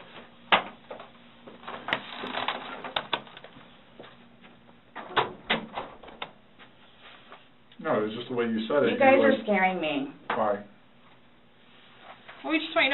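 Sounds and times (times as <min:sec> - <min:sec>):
office chair shifting: 0:01.6 - 0:03.5.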